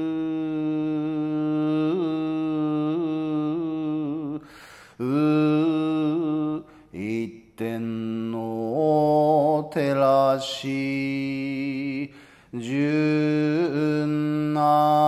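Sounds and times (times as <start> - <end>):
man chanting: 0.0 - 4.4, 5.0 - 15.0.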